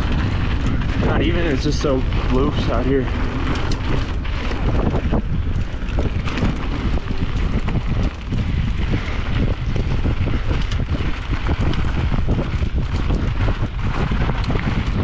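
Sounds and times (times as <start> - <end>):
tyres crackling over gravel: 0.0 - 15.0
wind buffeting microphone: 0.0 - 15.0.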